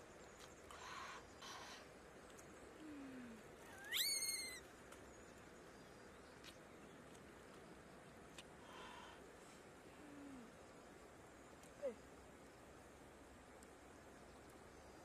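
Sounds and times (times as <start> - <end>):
faint steady hiss: 0.0 - 15.0
high-pitched animal call: 3.7 - 4.6.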